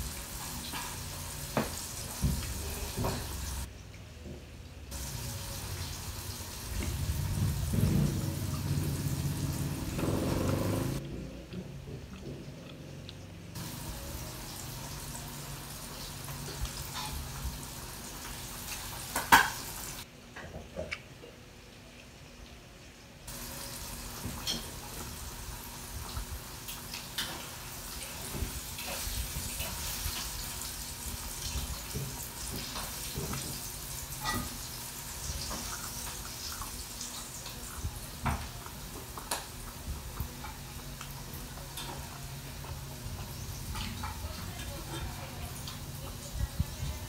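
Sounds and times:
chewing and crunching: 11.0 - 13.5.

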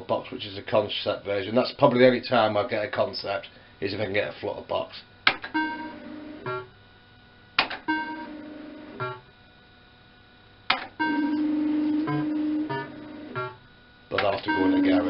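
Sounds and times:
steady electronic tone: 5.6 - 6.7, 11.0 - 13.7, 14.4 - 15.0.

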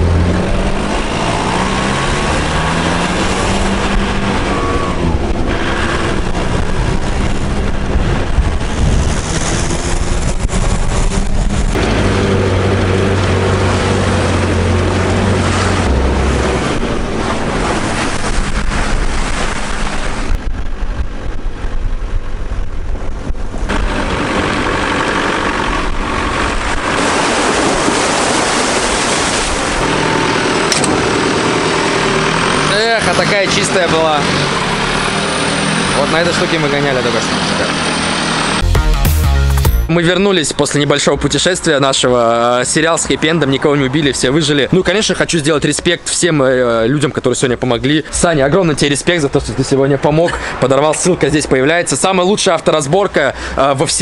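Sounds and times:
off-road car engine revving: 0.0 - 21.7, 23.3 - 38.7
tyres on wet mud: 0.0 - 21.8, 23.7 - 38.7
wind on microphone: 0.0 - 32.0.

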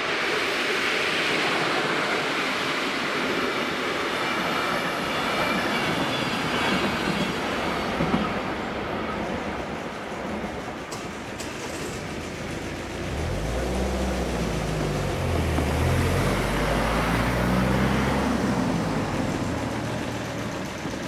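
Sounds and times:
car engines: 10.9 - 21.0.

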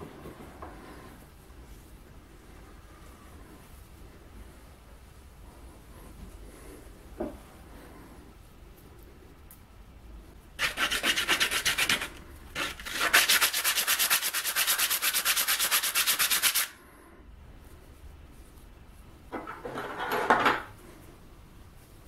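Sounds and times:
wood sanded on sandpaper: 10.6 - 16.8.

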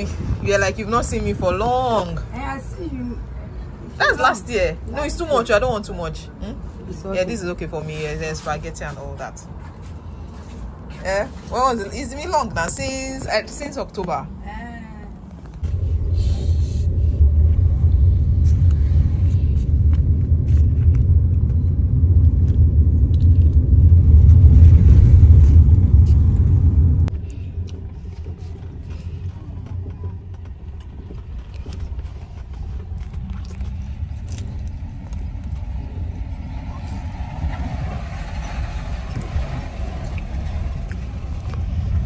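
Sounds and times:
car rumble from inside cabin: 14.8 - 42.0.

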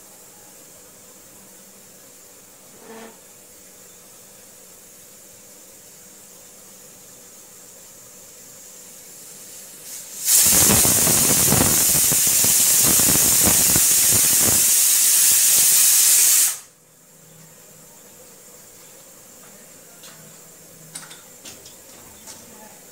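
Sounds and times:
pressure cooker whistle hissing: 2.8 - 3.2, 9.8 - 16.8.

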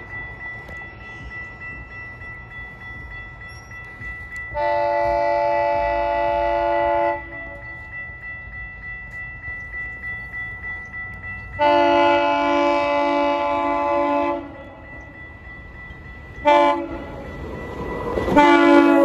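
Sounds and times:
train horn chord: 4.4 - 7.8, 11.6 - 15.1, 16.4 - 17.1, 18.3 - 19.0.

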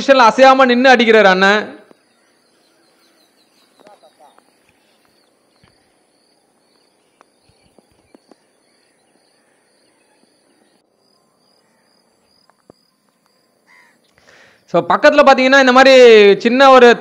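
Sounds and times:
faint chirping: 1.8 - 14.9.

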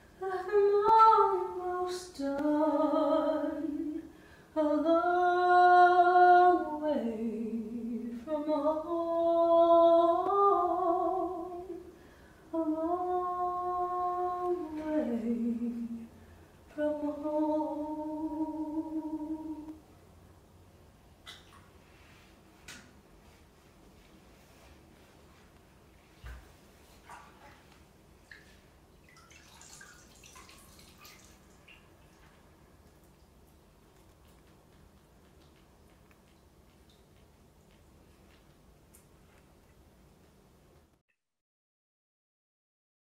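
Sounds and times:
woman singing unaccompanied: 0.2 - 11.9, 12.5 - 19.8.

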